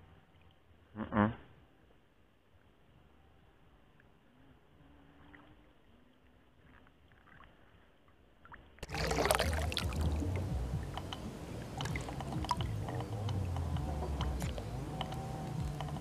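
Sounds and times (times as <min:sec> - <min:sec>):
water lapping against bank: 0:05.0 - 0:16.0
low rumble: 0:08.8 - 0:16.0
small clicks: 0:11.0 - 0:16.0.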